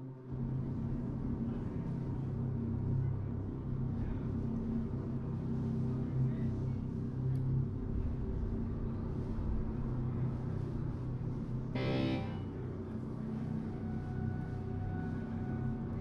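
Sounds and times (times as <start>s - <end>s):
live music with droning bass: 11.8s - 12.4s.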